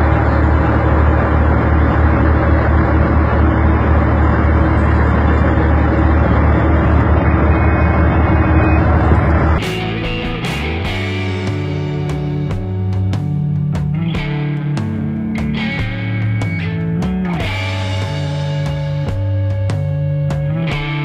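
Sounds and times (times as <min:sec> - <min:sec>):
heavy diesel engine rumbling: 0:00.0 - 0:21.0
music: 0:09.6 - 0:21.0.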